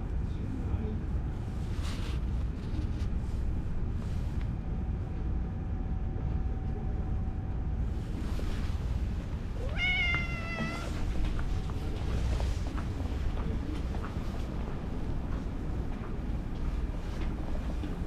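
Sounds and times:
steady low rumble: 0.0s - 18.0s
cat meowing: 9.6s - 11.1s.

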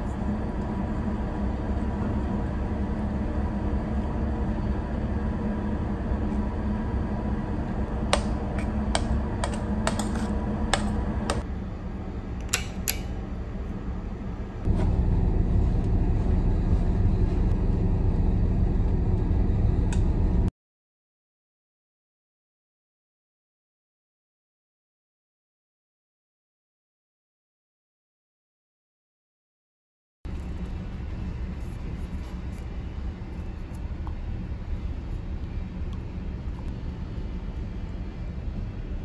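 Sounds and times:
ship machinery drone: 0.0s - 20.5s, 30.3s - 39.0s.

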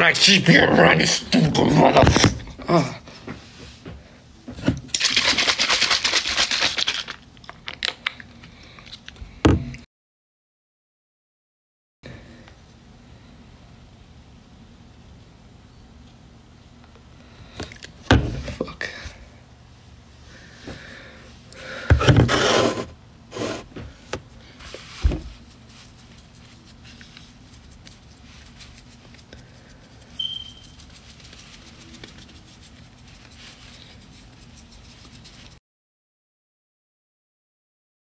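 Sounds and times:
faint steady hum: 12.1s - 35.6s
rustling: 24.6s - 35.6s
short high beep: 30.2s - 30.8s.

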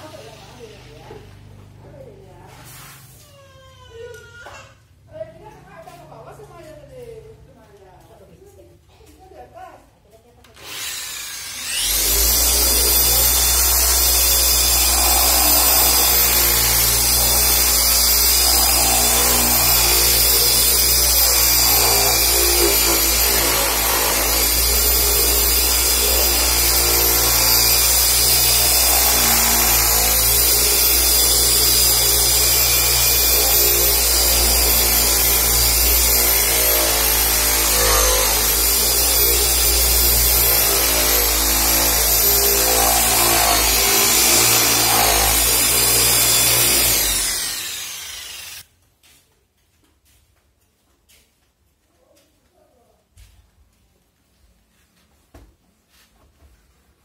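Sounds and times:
electric car polisher whining: 10.6s - 48.6s.

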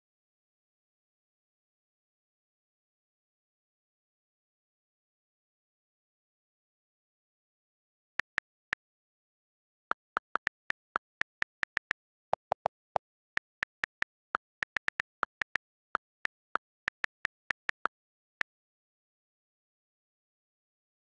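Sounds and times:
on-screen keyboard clicks: 8.2s - 8.8s, 9.9s - 18.3s.

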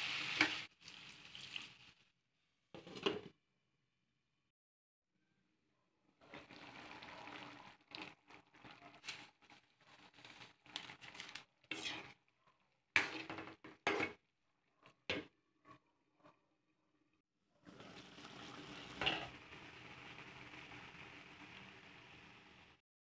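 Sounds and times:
metal ladle scraping a pot: 11.0s - 12.2s, 19.0s - 19.3s.

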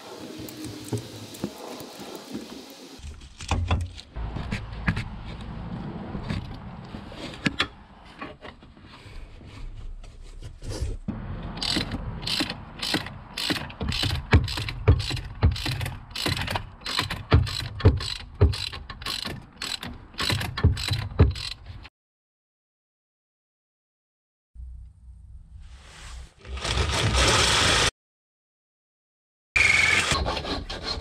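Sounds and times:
ratchet clicking: 11.6s - 21.7s.

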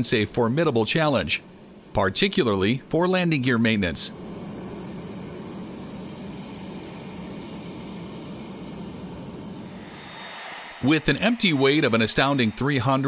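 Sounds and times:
faint high whine: 0.0s - 13.0s
jet engines rushing: 4.1s - 13.0s.

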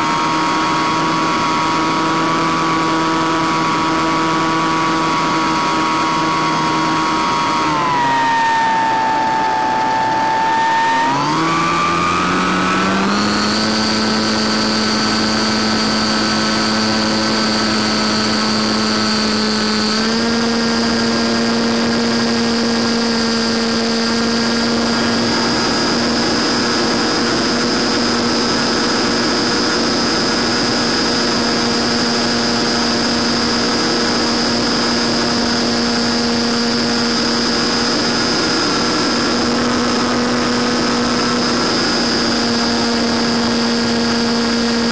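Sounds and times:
electric motor and propeller drone: 0.0s - 44.9s
high whine: 0.0s - 44.9s.

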